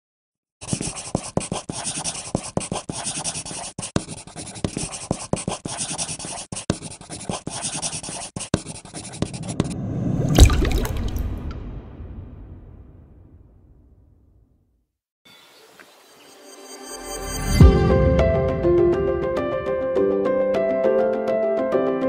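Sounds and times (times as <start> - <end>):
pencil scratching on paper: 0.6 - 9.8.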